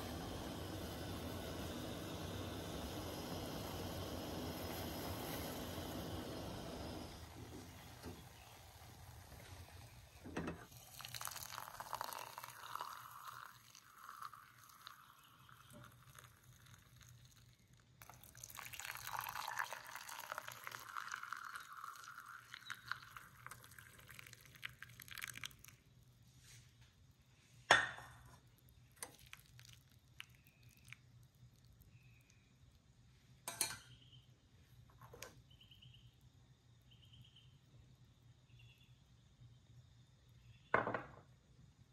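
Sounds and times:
tea pouring through metal strainer: 0:00.0 - 0:26.0, 0:28.3 - 0:32.5.

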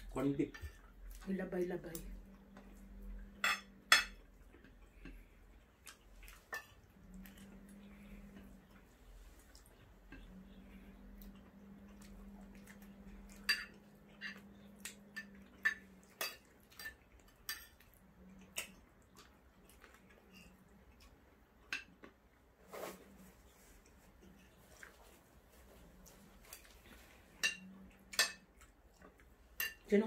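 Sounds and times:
low steady hum: 0:00.0 - 0:30.0
cutlery clinking on plates: 0:03.3 - 0:04.3, 0:13.2 - 0:17.8, 0:27.4 - 0:28.5.

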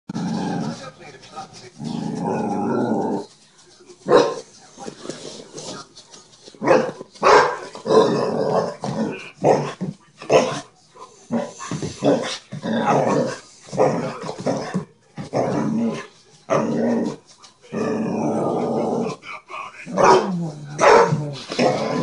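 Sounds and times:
dog growling and barking: 0:00.1 - 0:00.8, 0:01.8 - 0:03.3, 0:06.7 - 0:10.7, 0:11.3 - 0:22.0.

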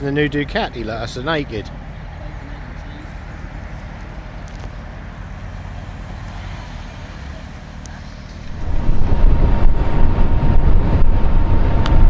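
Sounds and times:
low outdoor rumble: 0:00.0 - 0:12.0
wind rushing: 0:08.4 - 0:12.0.

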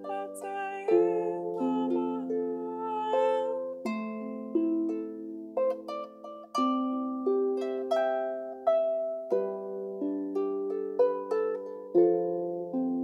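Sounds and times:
harp plucked notes: 0:00.0 - 0:13.0.

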